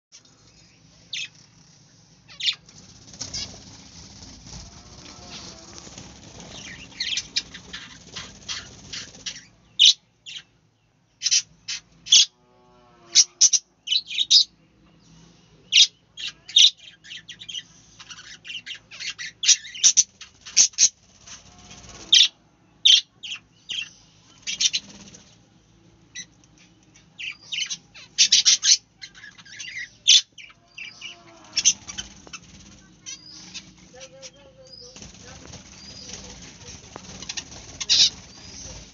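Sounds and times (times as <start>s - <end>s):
wings flapping: 2.4s - 9.5s, 19.8s - 22.2s, 24.4s - 25.4s, 31.1s - 38.9s
budgerigars chirping: 6.4s - 10.5s, 15.8s - 21.0s, 27.2s - 38.9s.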